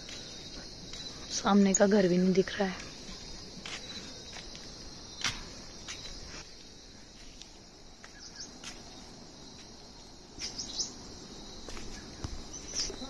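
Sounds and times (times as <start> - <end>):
high-pitched insect chorus: 0.0 - 13.0
bird chirps: 8.1 - 9.0, 10.4 - 11.0.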